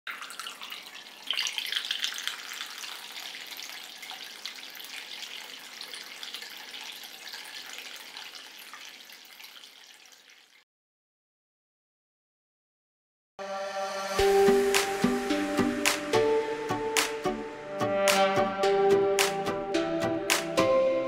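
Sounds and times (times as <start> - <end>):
fountain water trickling and splashing: 0.1 - 10.6.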